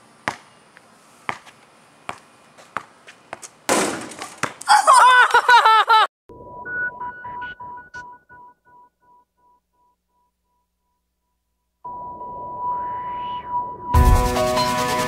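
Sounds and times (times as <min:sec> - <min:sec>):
basketball hitting backboard and rim: 0:00.2 - 0:00.5, 0:02.1 - 0:04.6.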